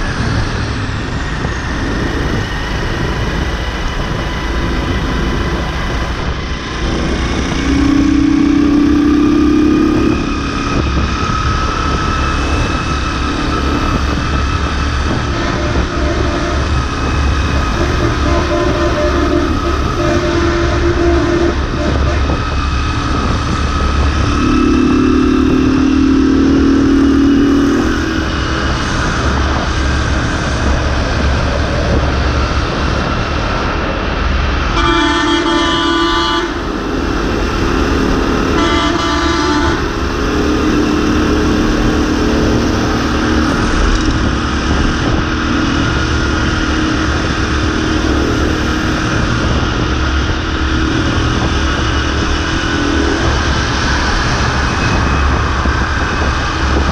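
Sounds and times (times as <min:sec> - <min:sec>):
wind rushing over microphone: 0:00.0 - 0:56.9
bus horn blasts: 0:15.1 - 0:22.5, 0:24.0 - 0:28.5, 0:34.7 - 0:43.6.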